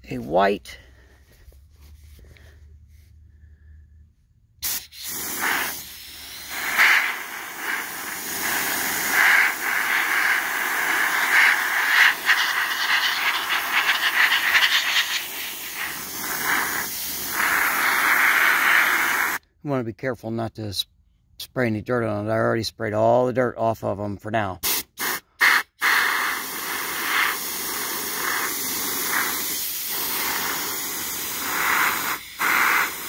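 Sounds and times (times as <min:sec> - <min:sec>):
air blow gun hissing: 0:04.6 - 0:19.4, 0:24.6 - 0:33.0.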